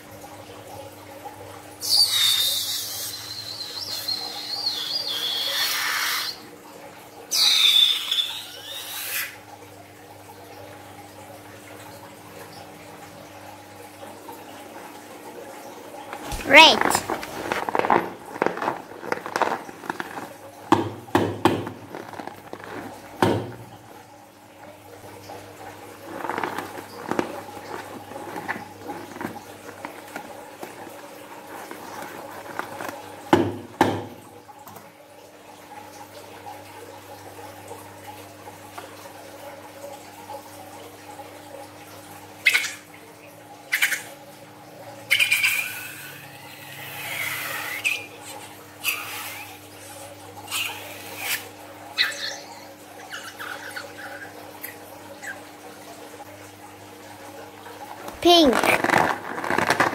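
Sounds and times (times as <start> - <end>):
balloon squeaking and squelching: 16.2 - 23.6, 26.0 - 33.1, 58.0 - 59.9.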